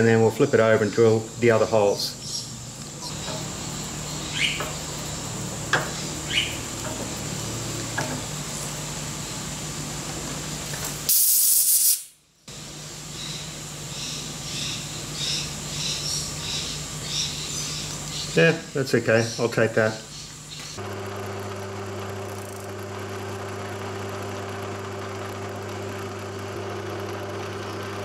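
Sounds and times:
milling machine hum and whine: 0.0 - 11.1, 12.5 - 28.0
short loud hiss: 11.1 - 12.2.

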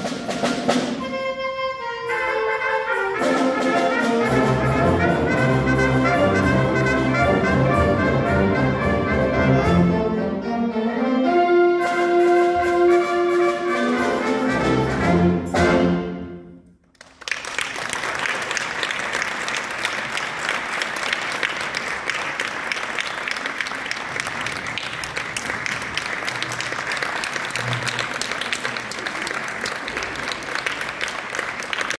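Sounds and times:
brass band chords: 0.0 - 16.7
audience applause: 16.9 - 32.0.

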